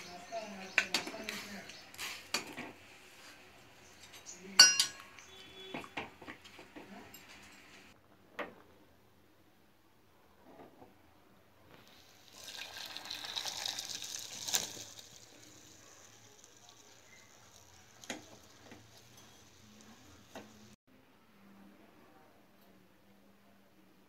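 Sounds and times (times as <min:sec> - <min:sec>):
pot knocking: 0:04.6 - 0:05.0
water gushing into a strainer: 0:11.8 - 0:18.6.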